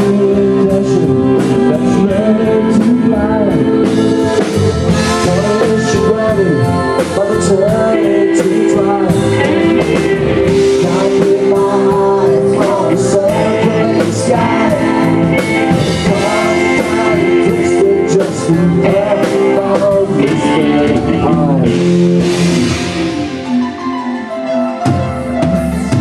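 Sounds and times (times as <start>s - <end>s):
man singing: 0.0s - 23.9s
live rock band playing: 0.0s - 26.0s.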